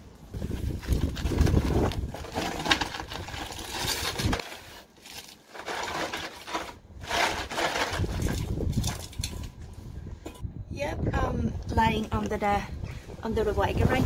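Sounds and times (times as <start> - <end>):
cardboard laid on gravel: 0.3 - 9.5
cardboard scraping and rustling: 0.4 - 9.1.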